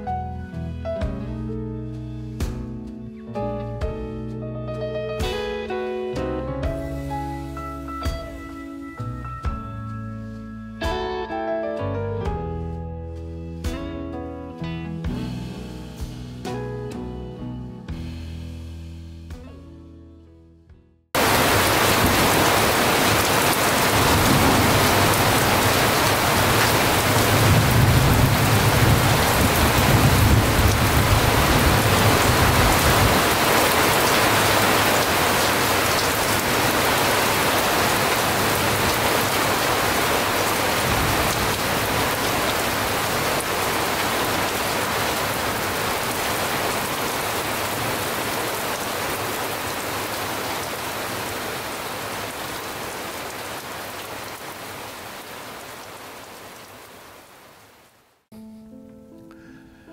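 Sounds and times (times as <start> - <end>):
heavy rain on grass: 21.2 - 58.2.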